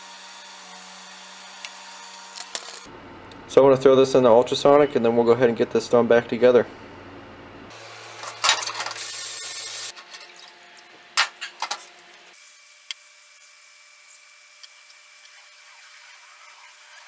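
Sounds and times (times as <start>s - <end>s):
ultrasonic cleaner hiss and hum: 0.0s - 17.0s
parts and lid clattering: 8.2s - 9.3s, 11.2s - 11.9s.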